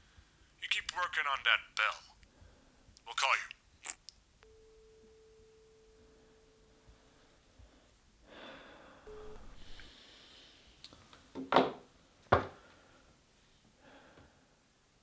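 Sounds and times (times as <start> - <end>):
phone line tone: 4.4 - 7.2, 9.1 - 9.9
man breathing heavily: 7.6 - 10.6, 13.8 - 14.6.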